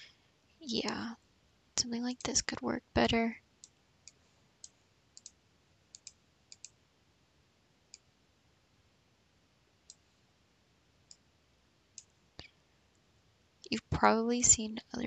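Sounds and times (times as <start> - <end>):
computer mouse clicking: 3.6 - 6.8, 9.8 - 10.0.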